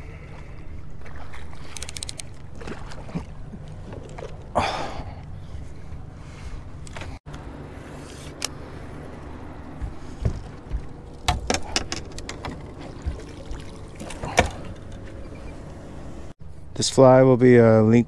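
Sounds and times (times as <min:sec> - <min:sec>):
boat motor running: 0:00.0 - 0:16.6
gear clicking and knocking: 0:09.7 - 0:13.4.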